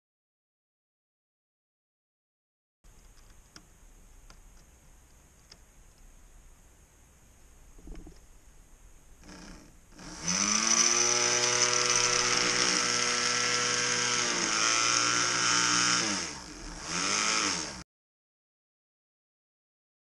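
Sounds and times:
electric motor whining: 9.2s - 17.8s.

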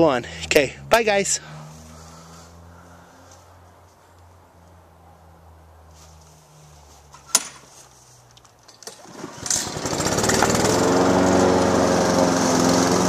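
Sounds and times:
lawn mower engine sputtering and running: 8.8s - 13.0s.

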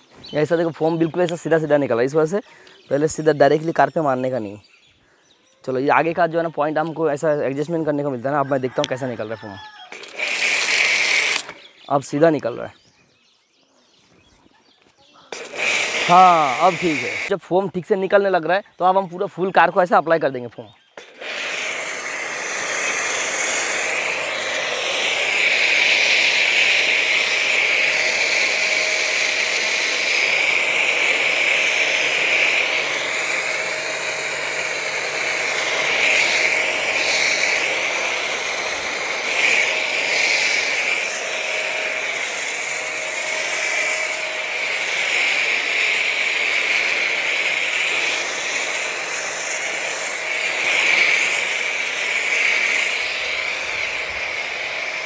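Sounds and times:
pressure washer motor whine: 9.9s - 11.6s, 15.3s - 17.3s, 21.0s - 55.0s
foam spray hissing: 9.9s - 11.7s, 15.3s - 17.3s, 21.0s - 55.0s.

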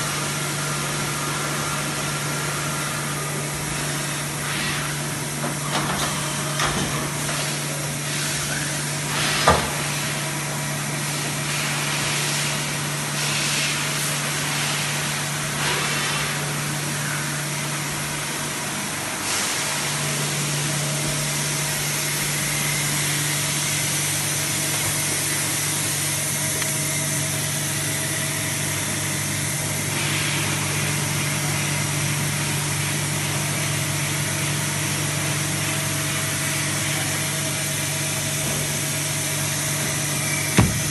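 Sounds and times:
machine humming with hiss: 0.0s - 40.9s
sharp knock: 40.6s - 40.9s.

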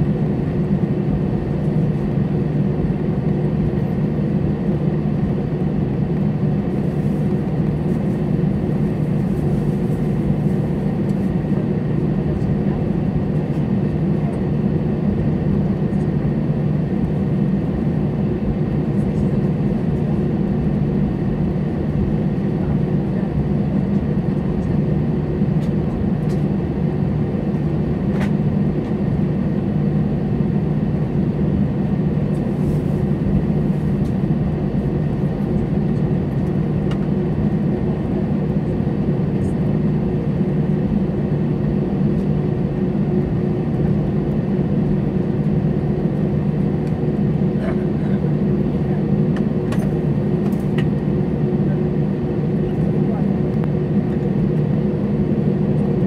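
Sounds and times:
jet engines humming at idle: 0.0s - 56.0s.

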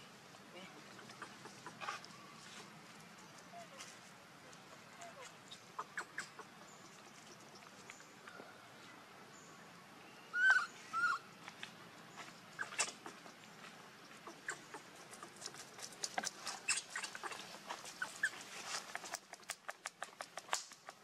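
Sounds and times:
baby monkey squeaky calls: 5.0s - 6.5s, 10.3s - 11.2s, 12.6s - 13.2s, 16.5s - 17.4s, 18.0s - 18.4s.

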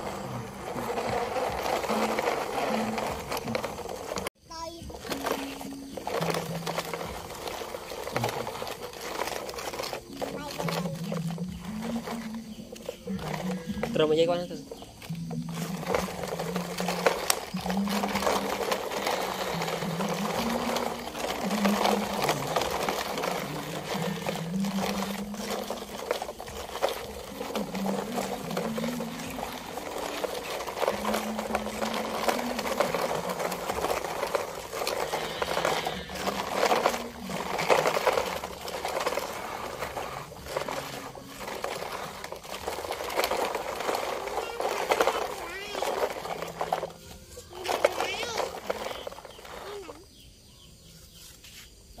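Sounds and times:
background music: 0.0s - 50.1s
toy trucks rattling over dirt: 0.0s - 52.0s.

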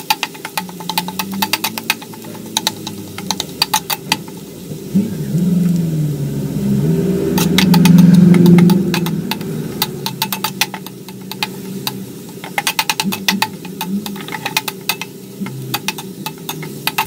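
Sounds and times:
metal spatula scraping wok: 0.0s - 4.7s, 6.8s - 17.0s
low motor drone: 1.1s - 12.3s.

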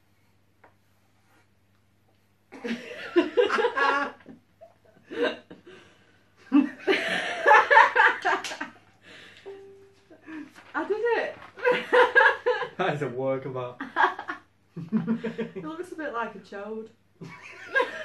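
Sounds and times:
man and woman laughing: 2.6s - 5.6s, 6.5s - 8.8s, 11.6s - 12.8s, 13.8s - 15.6s, 17.2s - 18.0s.

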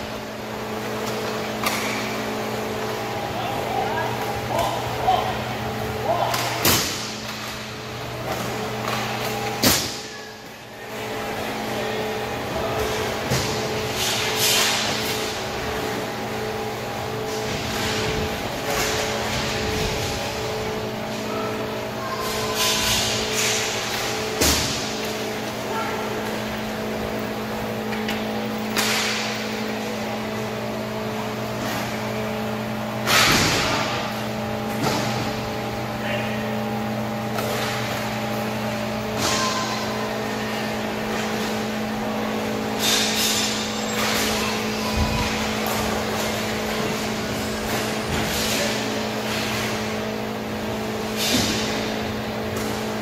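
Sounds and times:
steady hum: 0.0s - 53.0s
hockey impacts: 27.7s - 30.1s.

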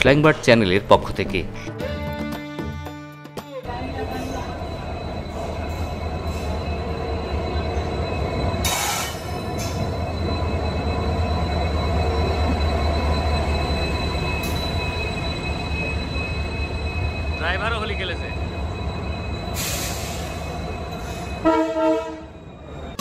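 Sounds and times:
diesel locomotive rumble: 3.5s - 23.0s
high-pitched whine: 3.7s - 21.4s.

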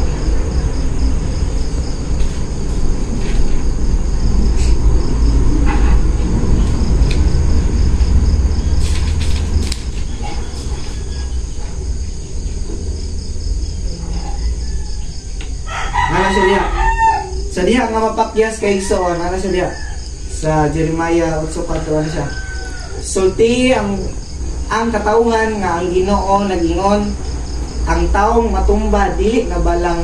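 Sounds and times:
low rumble: 0.0s - 15.6s
high-pitched insect chirring: 0.0s - 30.0s.

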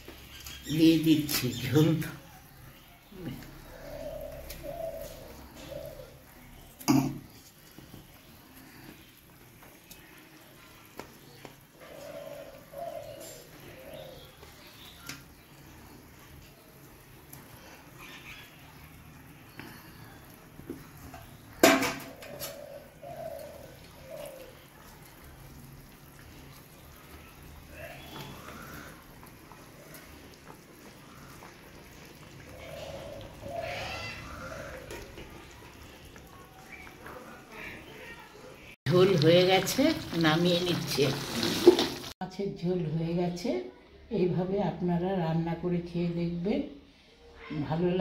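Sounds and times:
curry bubbling: 0.0s - 42.2s
bird cooing: 3.1s - 7.4s, 10.7s - 16.7s, 17.5s - 25.6s, 26.7s - 38.7s.

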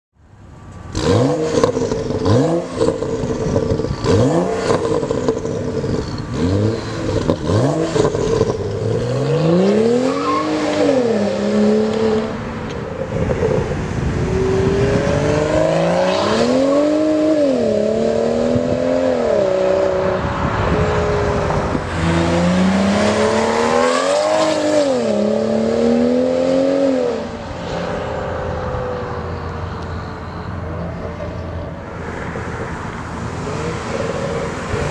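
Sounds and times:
car engine revving: 0.9s - 34.9s
car accelerating through gears: 13.0s - 27.8s.

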